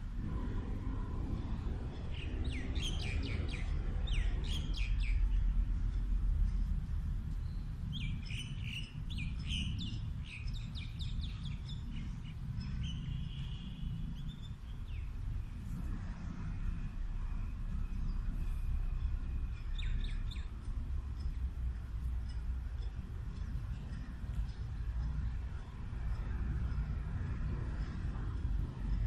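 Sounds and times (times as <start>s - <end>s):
steady low rumble: 0.0s - 29.0s
birds chirping: 7.3s - 15.6s.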